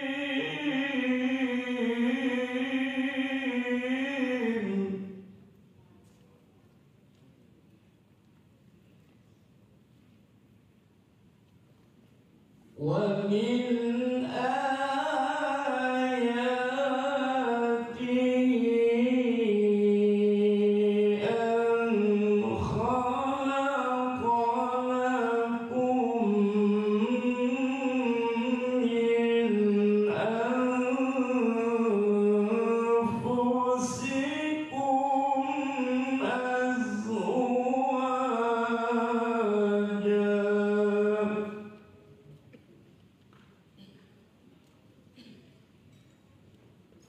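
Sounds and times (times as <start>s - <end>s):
man chanting into a microphone: 0.0s - 5.4s, 12.7s - 42.1s.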